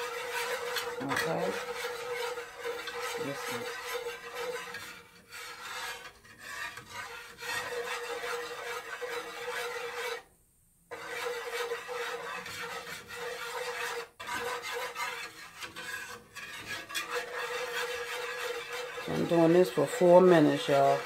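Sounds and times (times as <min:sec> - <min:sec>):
wire whisk scraping a pan: 0:00.0 - 0:10.3, 0:10.9 - 0:21.0.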